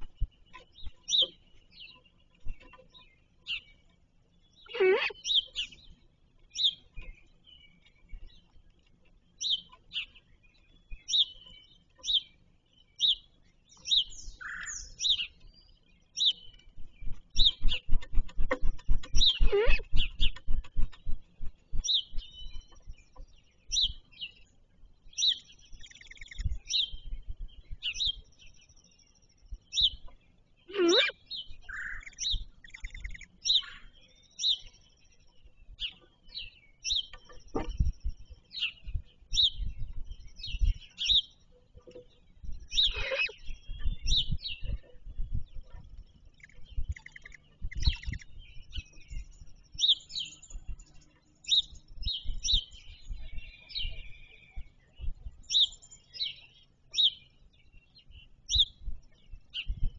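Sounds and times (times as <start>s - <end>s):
songbirds chirping: 0.0s - 59.9s
low thumps and rumbles: 37.3s - 40.9s, 43.4s - 49.6s.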